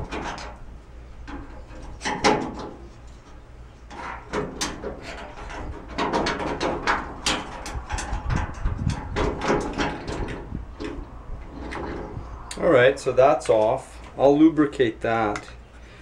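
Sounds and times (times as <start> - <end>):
metal clicking and scraping: 0.0 - 12.6.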